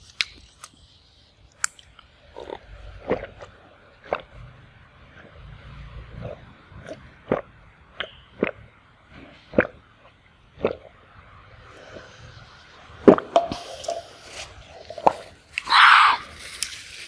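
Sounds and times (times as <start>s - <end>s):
person gulping a drink: 2.3s - 4.3s, 10.5s - 11.0s.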